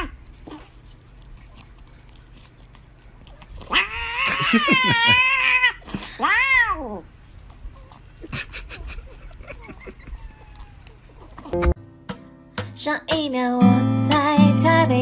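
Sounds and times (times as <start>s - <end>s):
cat meowing: 3.7s - 7.0s, 10.1s - 11.0s.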